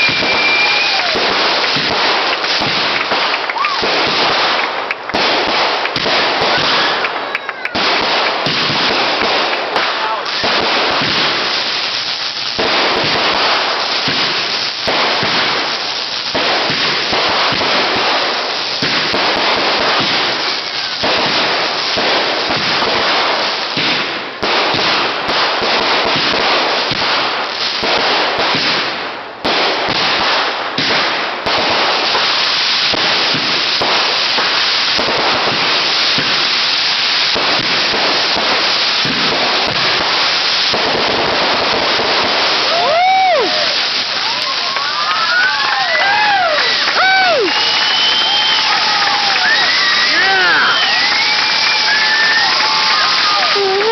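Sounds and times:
fireworks crackling and popping: 0.0s - 53.9s.

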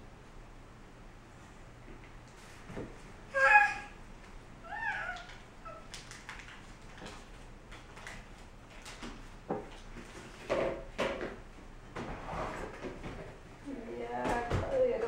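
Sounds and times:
baby cooing: 3.3s - 4.0s, 4.6s - 5.9s
baby squealing: 3.3s - 4.0s, 4.6s - 5.9s.

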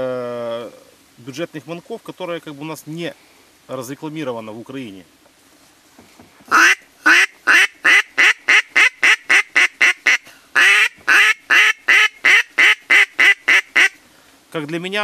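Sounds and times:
duck call quacking: 6.5s - 14.0s.

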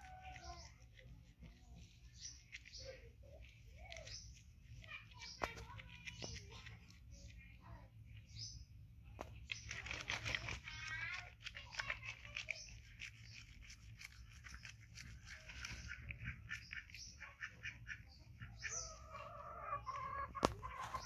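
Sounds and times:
soapy hands scrubbing: 9.4s - 18.0s.

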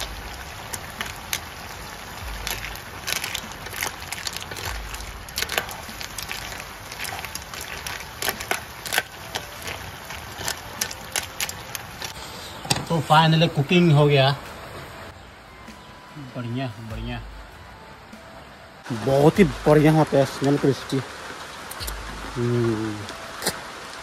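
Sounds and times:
snails sizzling in a wok: 0.0s - 12.3s
sharp crackles and pops: 0.0s - 13.2s.

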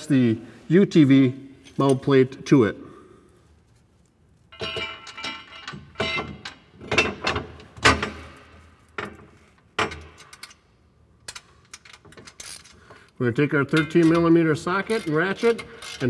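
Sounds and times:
steel plates clanking and scraping: 4.5s - 8.1s.

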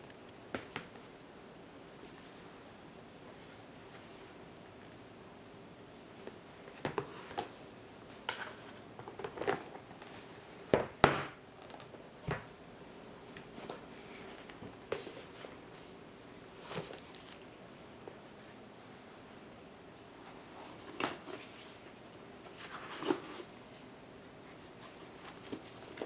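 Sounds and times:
pages flipping: 16.6s - 17.5s.

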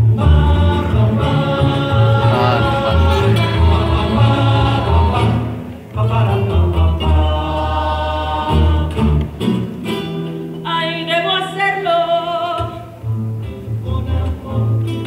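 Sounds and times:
solo voice singing with vibrato: 0.0s - 9.0s, 13.6s - 15.0s
group singing: 0.0s - 9.5s
acoustic guitars strummed: 0.0s - 15.0s.

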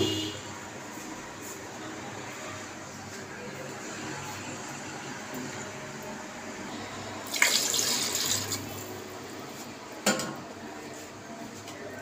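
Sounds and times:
water splashing into pot: 7.2s - 8.9s.

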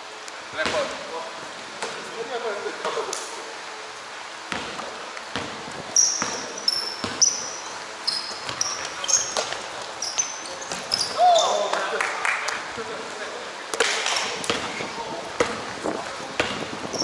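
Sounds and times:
basketball bouncing: 4.5s - 11.2s, 13.8s - 14.8s, 15.4s - 15.7s, 16.4s - 17.0s
sneaker squeaks: 4.5s - 11.7s, 14.0s - 14.8s, 16.4s - 17.0s.

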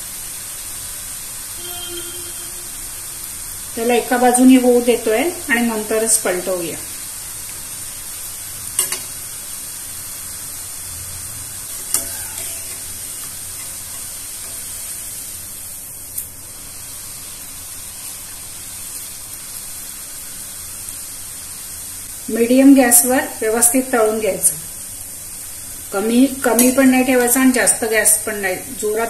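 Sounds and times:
oil sizzling while frying: 0.0s - 29.0s.

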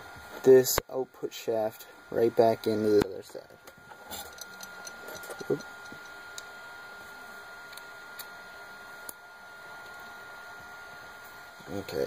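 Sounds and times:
faint high whine: 0.0s - 12.0s
small parts clicking and tapping: 3.0s - 6.5s.

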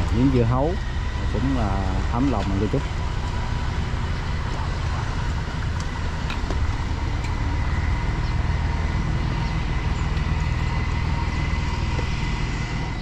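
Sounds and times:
engine rumbling steadily: 0.0s - 13.0s.

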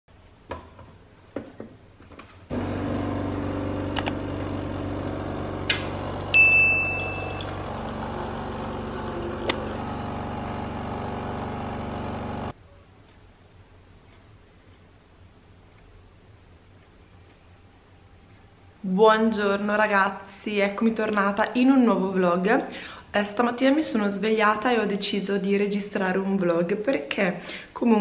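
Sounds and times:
coffee machine pump humming: 2.5s - 12.5s
clear ding: 6.3s - 7.5s.

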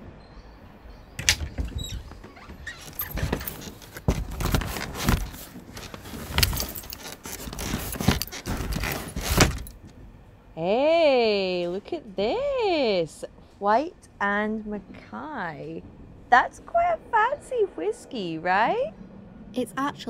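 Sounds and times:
low steady rumble: 0.0s - 20.0s
objects clattering and clinking: 1.2s - 9.8s.

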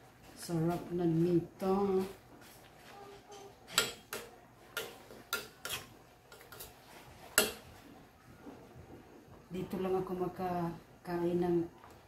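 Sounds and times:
spoon clinking against metal pot: 3.3s - 6.7s, 7.4s - 7.7s.

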